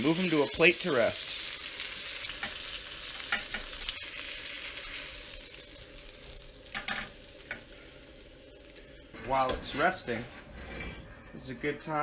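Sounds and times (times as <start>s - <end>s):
butter sizzling in a pan: 0.0s - 9.2s.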